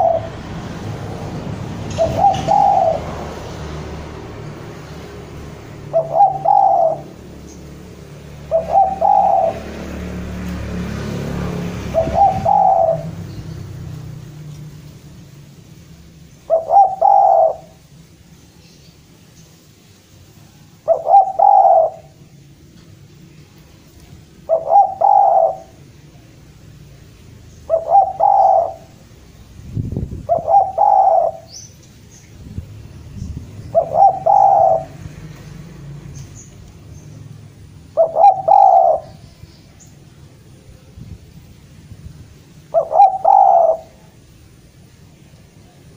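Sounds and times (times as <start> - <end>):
dove cooing: 0.0 - 0.5, 1.8 - 3.4, 5.6 - 7.6, 8.2 - 10.8, 11.8 - 13.3, 16.4 - 17.8, 20.8 - 22.2, 24.3 - 25.9, 27.6 - 29.0, 30.2 - 31.6, 33.7 - 35.1, 37.9 - 39.3, 42.7 - 44.2.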